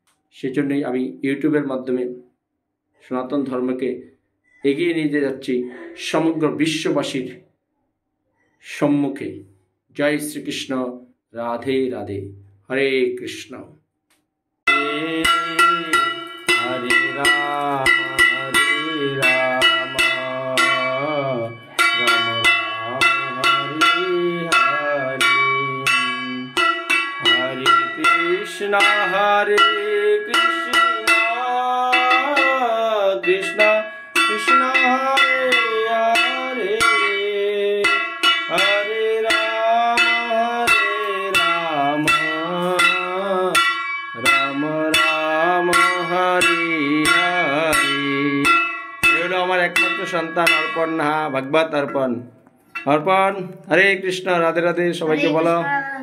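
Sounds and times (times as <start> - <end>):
person singing: 14.7 - 43.6, 44.2 - 50.8
devotional music: 14.7 - 51.6
bell ringing rapidly: 14.7 - 52.2.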